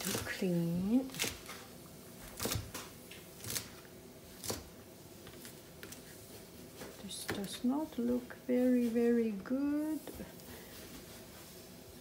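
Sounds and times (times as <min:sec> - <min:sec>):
knife chopping on plastic board: 0:02.3 - 0:03.7.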